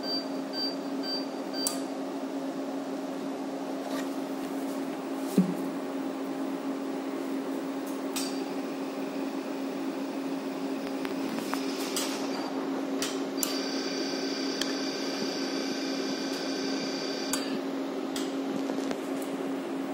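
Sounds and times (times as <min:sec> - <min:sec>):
laser system humming: 0:05.8 - 0:18.4
high multi-tone whine: 0:08.2 - 0:17.7.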